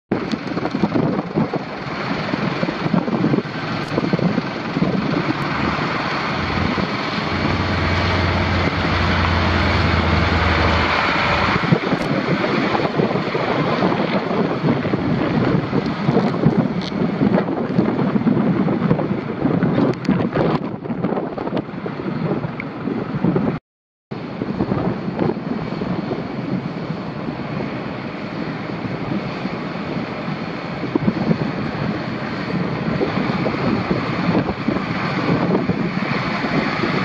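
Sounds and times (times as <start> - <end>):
wind buffeting microphone: 0.1 - 37.0
steady low hum: 3.6 - 11.8.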